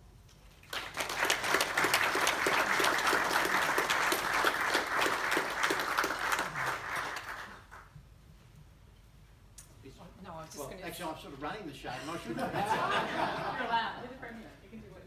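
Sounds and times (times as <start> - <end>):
audience applauding: 0.6 - 7.9.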